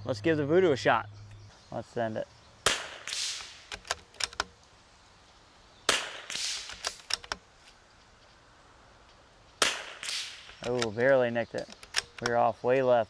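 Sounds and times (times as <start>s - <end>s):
rifle shot: 2.6s - 4.3s, 5.9s - 7.2s, 9.6s - 10.9s
sharp rifle bolt clicks: 2.7s - 4.7s, 5.9s - 7.5s, 9.6s - 12.4s.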